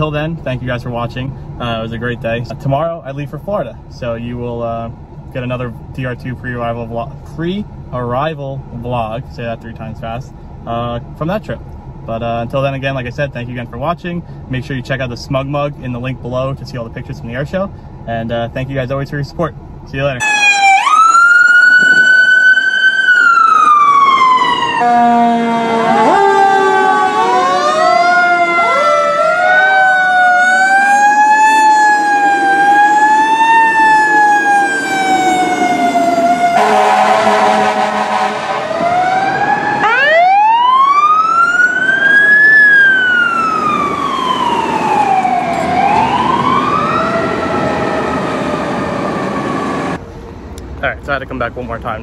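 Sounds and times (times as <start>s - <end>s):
fire sirens wailing: 20.2s - 50.0s
horn blast: 36.6s - 38.8s.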